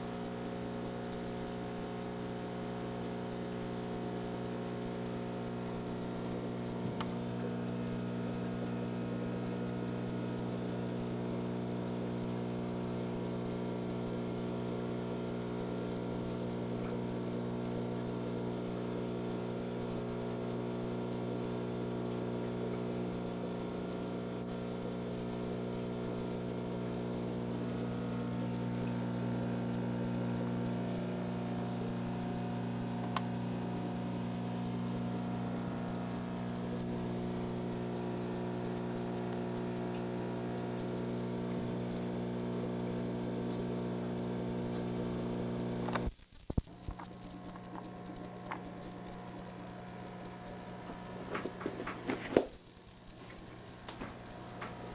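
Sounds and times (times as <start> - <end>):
aquarium filter humming: 0.0 - 54.9
faint clicks: 25.7 - 42.1, 42.9 - 54.9.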